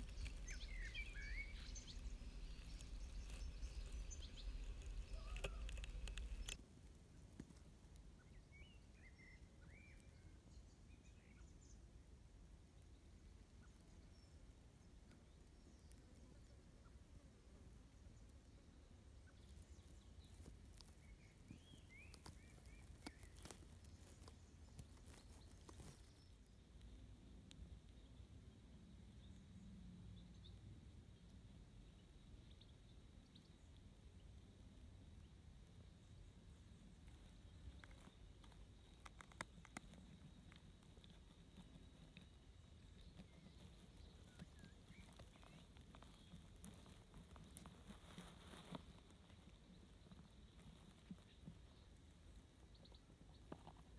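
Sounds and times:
faint bird chirps: 0:00.0 - 0:06.6, 0:08.2 - 0:11.9, 0:18.0 - 0:53.9
low wind rumble: 0:00.0 - 0:06.6
small clicks: 0:00.0 - 0:06.6, 0:37.0 - 0:42.3
soft ticks: 0:00.0 - 0:06.6, 0:21.9 - 0:28.0, 0:36.8 - 0:49.6.

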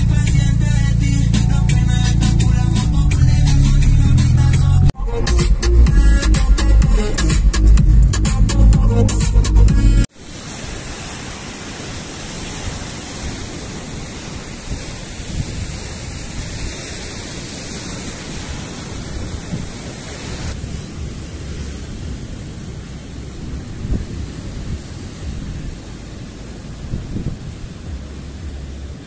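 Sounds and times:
waves breaking on rocks: 0:10.1 - 0:29.0
wind buffeting microphone: 0:11.9 - 0:29.0.

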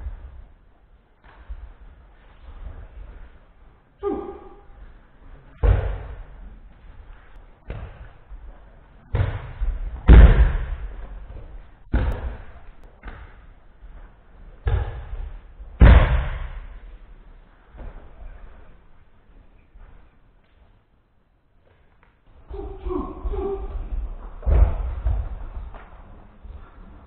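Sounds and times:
bodies thudding on mats: 0:05.5 - 0:06.4, 0:09.1 - 0:13.5, 0:14.6 - 0:16.9, 0:22.8 - 0:26.0.

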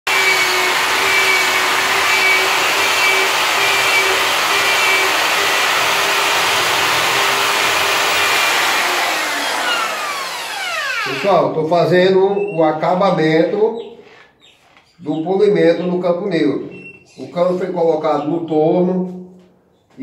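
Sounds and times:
electric drill whining: 0:00.0 - 0:11.5.

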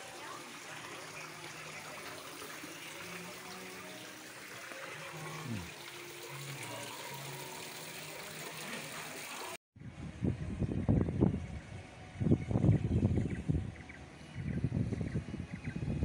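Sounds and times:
water splashing into a pond: 0:00.0 - 0:09.6.

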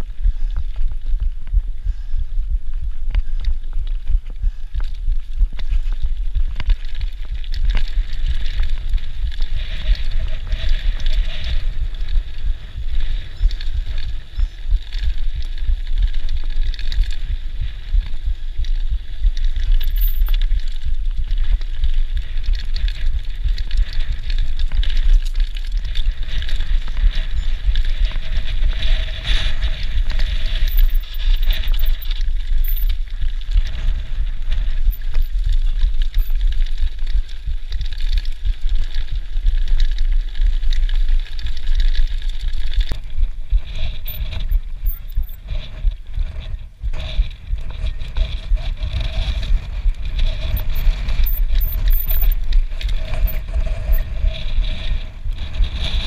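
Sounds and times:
mountain bike rattling on dirt trail: 0:00.0 - 0:56.0.

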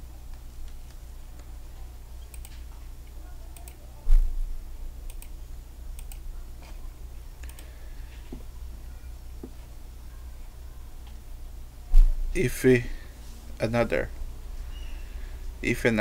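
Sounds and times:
steady low hum: 0:00.0 - 0:16.0
computer mouse clicks: 0:02.2 - 0:02.7, 0:03.6 - 0:03.8, 0:05.1 - 0:05.4, 0:06.0 - 0:06.8, 0:07.4 - 0:07.7.

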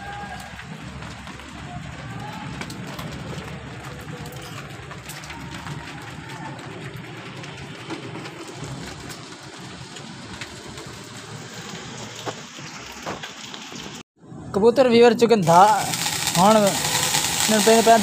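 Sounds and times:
rain on concrete: 0:00.0 - 0:14.0, 0:15.4 - 0:18.0
sharp drips: 0:15.4 - 0:18.0.

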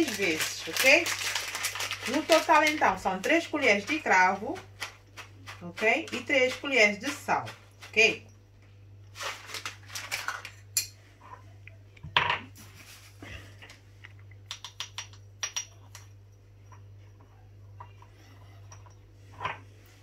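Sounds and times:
faint low hum: 0:01.7 - 0:20.0
spoon and cloves clicking on glass: 0:14.4 - 0:16.9.

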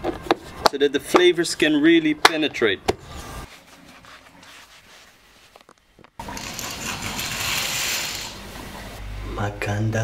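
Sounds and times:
faint shuffling: 0:03.2 - 0:05.7
curtains sliding along rail: 0:06.4 - 0:08.4.

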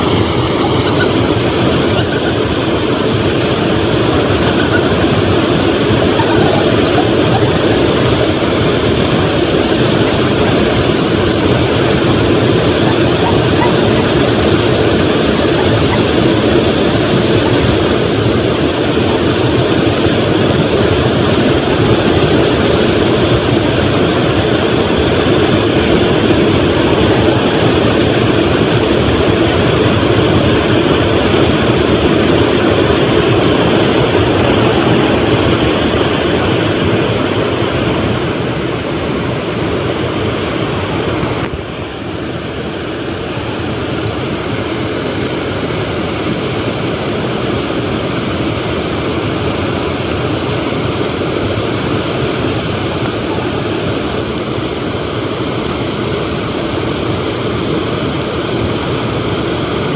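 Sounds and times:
rushing river water: 0:00.0 - 0:59.9.

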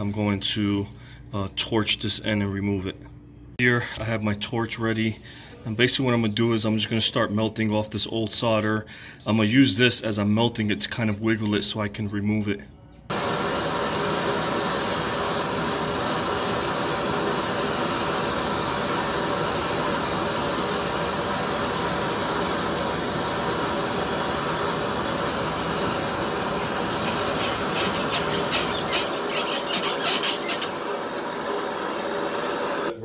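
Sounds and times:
water crackling and sizzling: 0:13.1 - 0:31.5
gas torch hissing: 0:13.1 - 0:33.0.

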